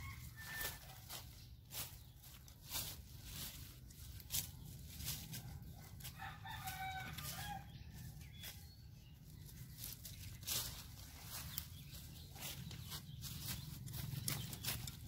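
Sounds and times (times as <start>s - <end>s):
rooster crowing: 0.0s - 1.1s, 6.0s - 8.0s.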